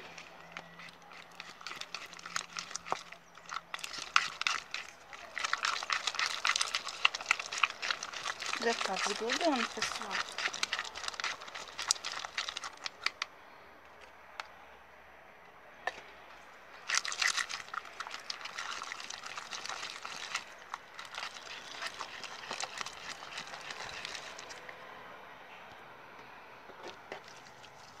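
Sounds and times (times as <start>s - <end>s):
slime stirred with crackling clicks: 0.0s - 13.3s, 16.8s - 24.6s, 27.1s - 28.0s.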